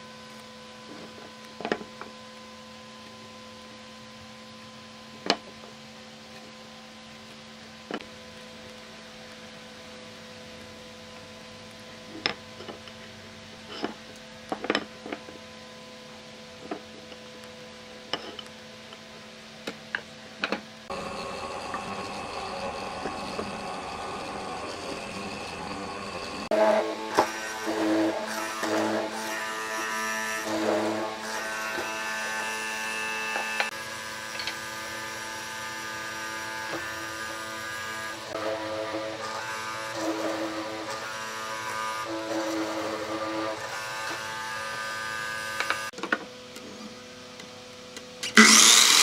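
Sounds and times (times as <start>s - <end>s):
electrical hum: 0.0s - 34.2s
machine motor hum: 20.9s - 29.7s.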